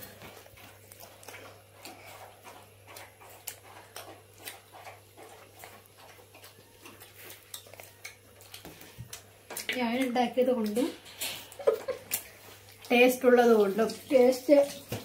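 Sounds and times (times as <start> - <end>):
person chewing food: 0.0 - 13.0
wet mouth clicks and lip smacks: 12.0 - 12.9.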